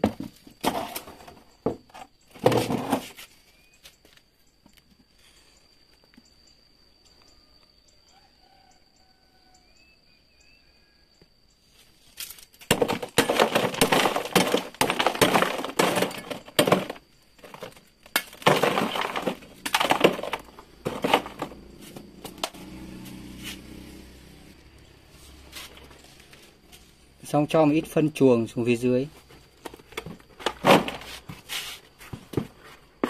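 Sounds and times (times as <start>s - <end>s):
knife crushing coal briquettes: 12.2s - 22.6s.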